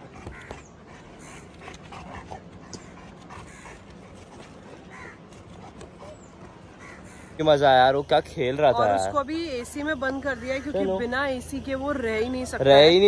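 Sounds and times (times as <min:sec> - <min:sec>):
dog panting: 0:00.0 - 0:07.0
crows cawing: 0:00.1 - 0:01.8, 0:02.6 - 0:07.7, 0:10.0 - 0:11.2.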